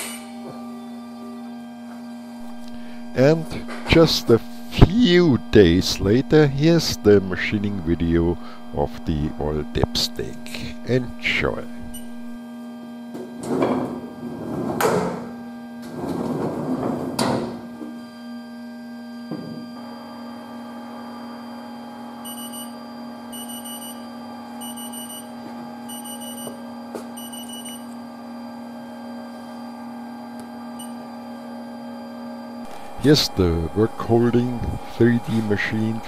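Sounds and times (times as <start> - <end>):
lathe electrical hum: 0.0 - 36.0.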